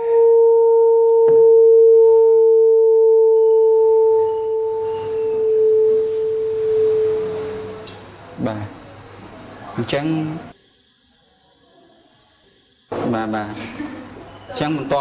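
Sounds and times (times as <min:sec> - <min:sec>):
singing pipe steady tone: 0:00.0 - 0:09.1.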